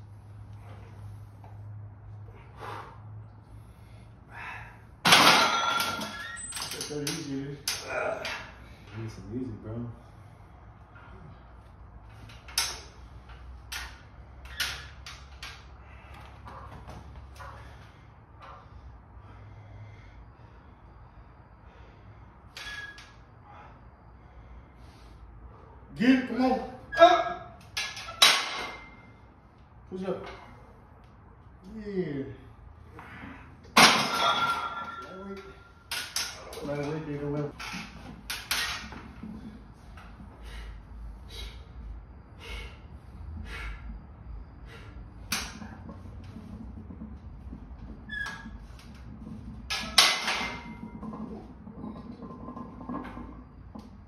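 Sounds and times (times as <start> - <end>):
short hissing breaths: 40.4 - 43.9.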